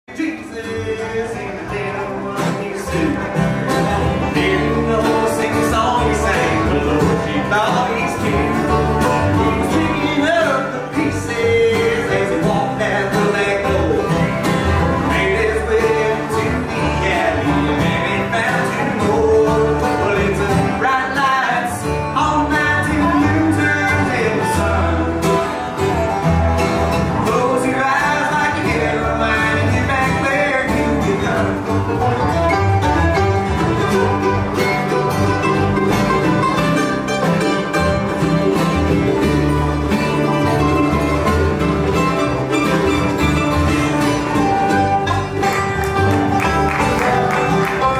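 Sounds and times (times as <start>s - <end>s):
person singing: 0.1s - 25.7s, 27.1s - 31.9s
bluegrass band playing: 0.1s - 47.9s.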